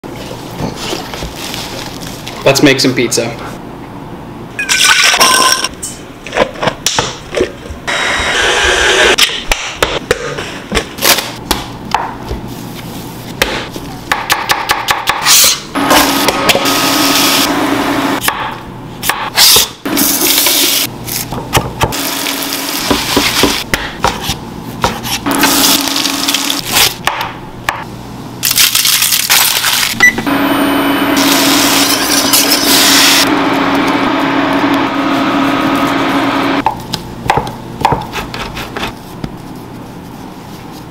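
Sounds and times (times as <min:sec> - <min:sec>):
stand mixer running: 0:30.3 - 0:36.6
knife chopping on wooden board: 0:36.6 - 0:38.9.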